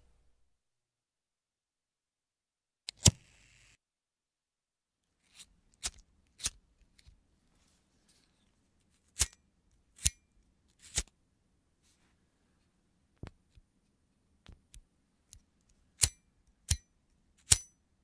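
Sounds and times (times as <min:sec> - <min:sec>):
lighter flint wheel clicks: 0:17.5 - 0:17.7.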